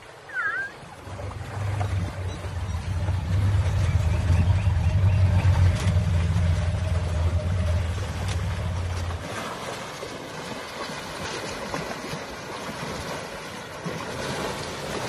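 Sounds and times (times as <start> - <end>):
river water rushing and splashing: 0.0 - 15.0
low steady hum: 0.3 - 9.8.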